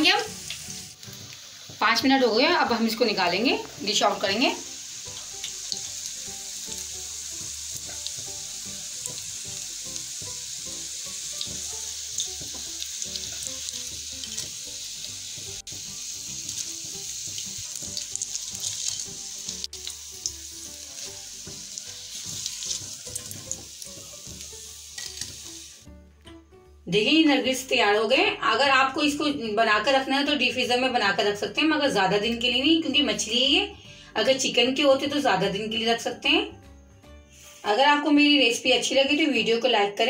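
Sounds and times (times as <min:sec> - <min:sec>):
hot oil sizzling in a pan: 0:00.0 - 0:25.9, 0:37.3 - 0:39.1
oil crackles and pops: 0:00.2 - 0:01.8, 0:04.6 - 0:14.7, 0:15.4 - 0:25.5.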